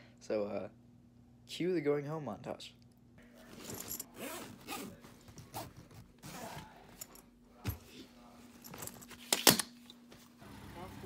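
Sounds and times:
scraping and rustling handling: 3.2 - 10.4.

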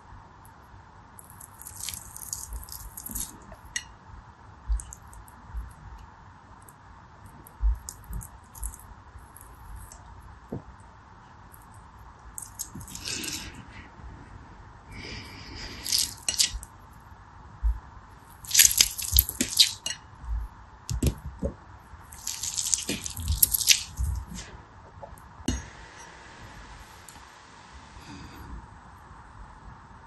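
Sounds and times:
gel beads clicking and clattering: 18.4 - 19.9, 22.1 - 24.3.

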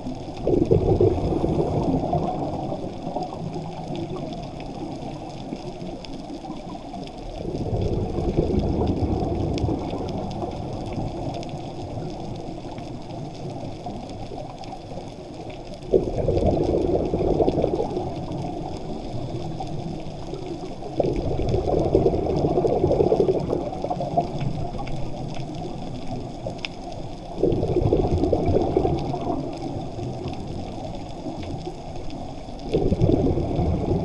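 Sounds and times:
muffled underwater water rush: 0.0 - 34.0
faint clicks: 2.0 - 21.8, 23.3 - 34.0.

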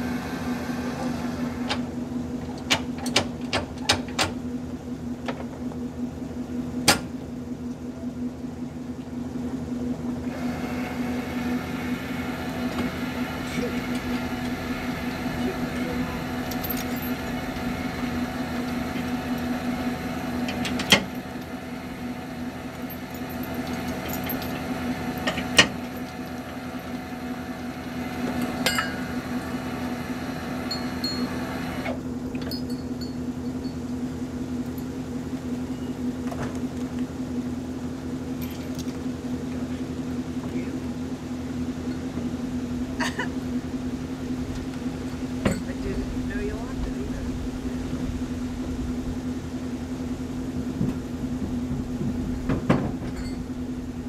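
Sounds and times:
machine hum: 9.5 - 54.0
metal chains clanking: 13.3 - 27.0, 28.2 - 29.6, 30.6 - 33.9, 53.0 - 53.6.

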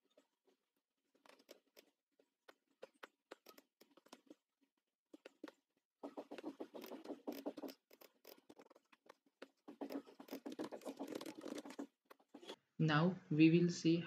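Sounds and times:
computer keyboard and mouse clicking: 5.2 - 12.6.

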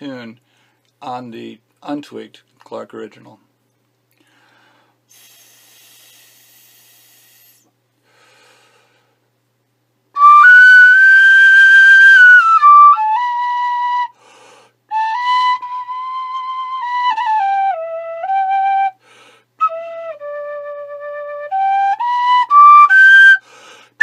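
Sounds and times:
tin whistle playing tune: 10.2 - 14.1, 19.6 - 23.4.

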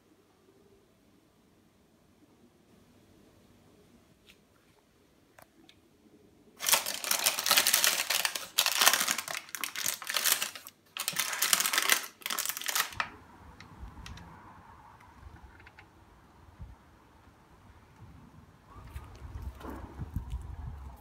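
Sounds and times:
baking parchment crinkling: 6.6 - 13.1.

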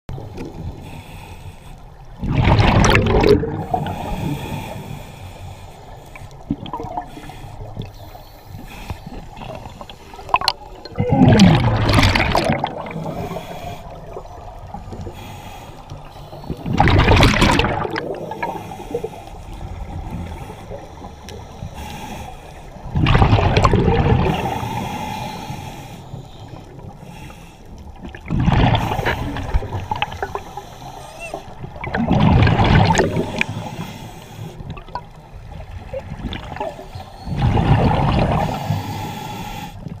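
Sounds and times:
exhaled bubbles rushing underwater: 2.2 - 4.8, 6.3 - 15.3, 16.4 - 25.0, 27.9 - 34.0, 34.6 - 39.0.

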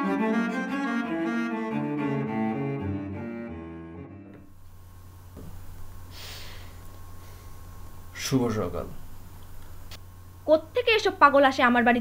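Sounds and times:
slow bowed strings: 0.0 - 4.5.

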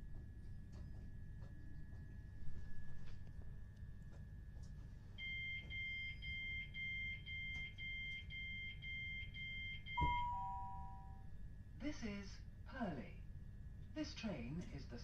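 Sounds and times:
train door warning beeps: 5.2 - 11.2.

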